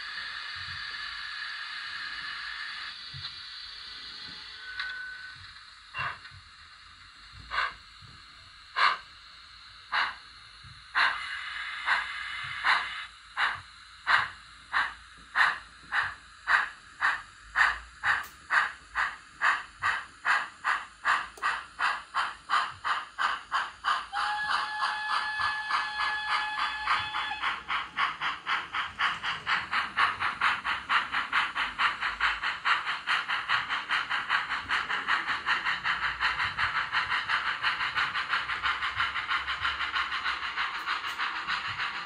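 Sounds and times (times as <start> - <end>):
steady whistle-like tone: 0.0 - 6.4, 23.3 - 42.0
model steam locomotive chuffs: 0.0 - 42.0
steam hiss: 0.0 - 42.0.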